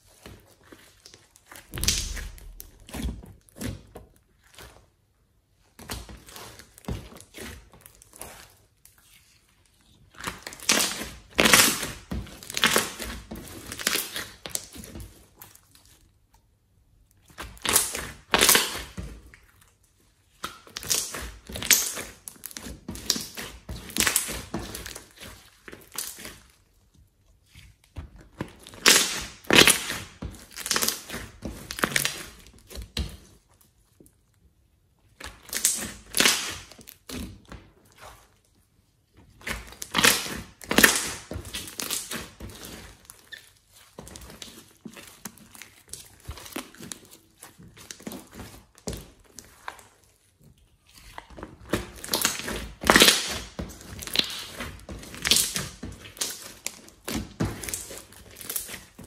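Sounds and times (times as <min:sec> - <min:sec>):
slime crackling and popping: 0:00.8 - 0:03.6, 0:10.2 - 0:15.8, 0:17.2 - 0:19.7, 0:20.4 - 0:26.4, 0:28.4 - 0:33.3, 0:35.2 - 0:37.4, 0:39.4 - 0:49.9, 0:50.7 - 0:59.0.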